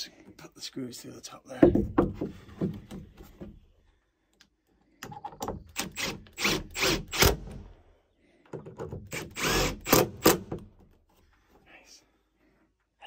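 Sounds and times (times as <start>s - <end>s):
power drill driving screws: 5.7s - 7.6s, 9.0s - 10.6s.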